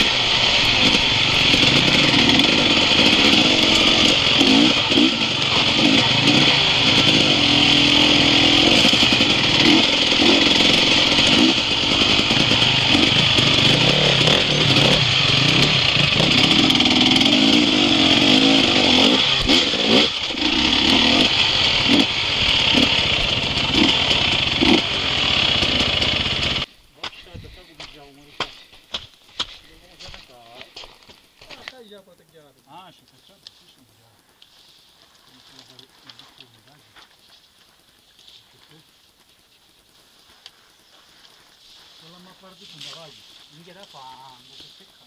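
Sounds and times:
dirt bike engine revving: 0.0s - 26.7s.

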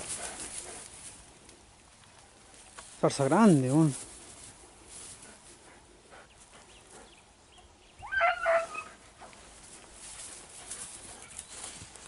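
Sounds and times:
dog yelping bay: 8.0s - 9.0s.

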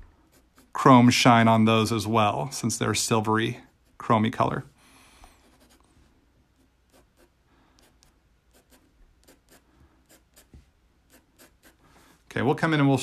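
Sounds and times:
pencil scratching on paper: 0.0s - 0.8s, 3.5s - 4.6s, 5.2s - 11.8s.

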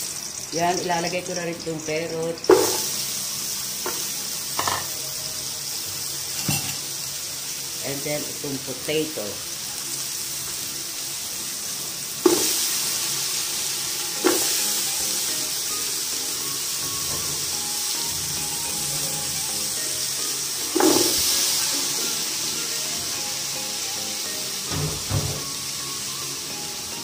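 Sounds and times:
vegetables sizzling in hot oil: 0.0s - 27.0s
light background music: 0.5s - 6.9s, 12.3s - 27.0s.

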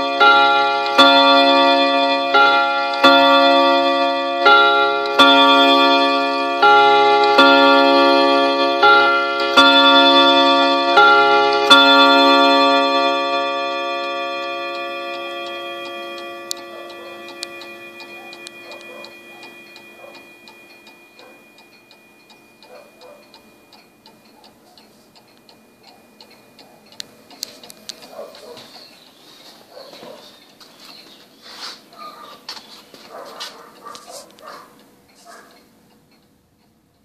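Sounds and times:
clock gong chime ringing: 0.0s - 29.0s
clock ticking: 0.0s - 31.1s, 31.8s - 37.0s.

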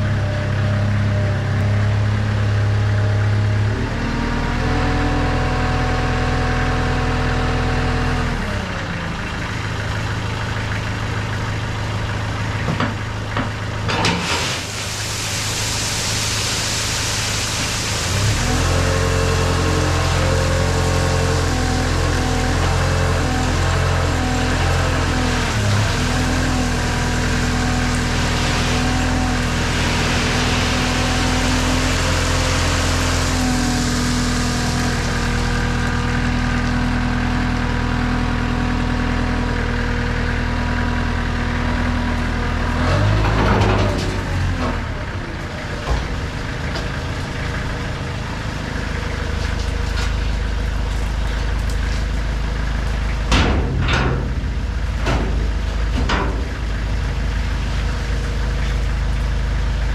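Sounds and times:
forklift engine running: 0.0s - 59.9s.

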